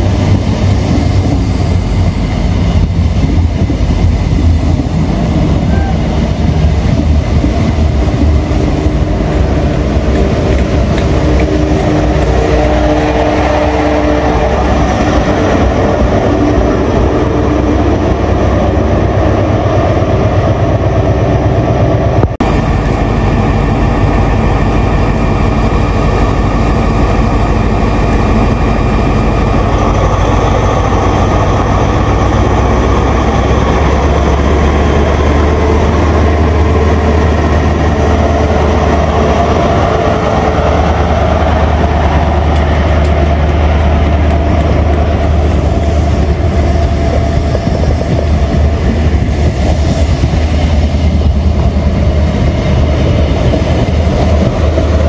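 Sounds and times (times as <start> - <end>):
train diesel engines droning: 0.0 - 55.0.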